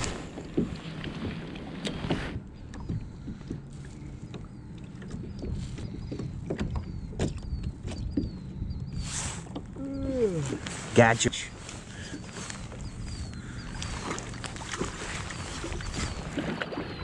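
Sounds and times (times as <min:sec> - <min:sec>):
low wind rumble: 0:00.0 - 0:17.0
small waves lapping against kayaks: 0:00.0 - 0:17.0
faint high chirp: 0:11.6 - 0:17.0.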